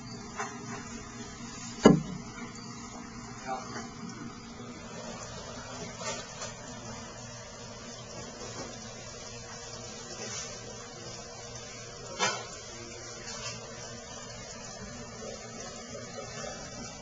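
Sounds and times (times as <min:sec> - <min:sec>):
sharp knock: 0:01.8 - 0:02.2.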